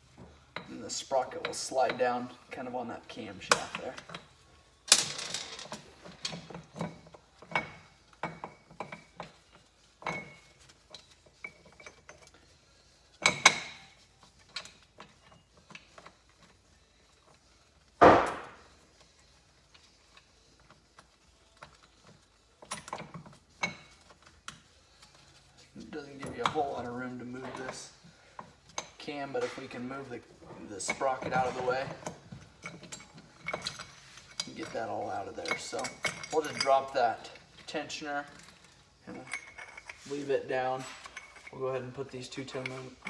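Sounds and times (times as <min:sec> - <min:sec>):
metallic clinks and knocks: 0:19.7 - 0:29.8, 0:30.9 - 0:43.0.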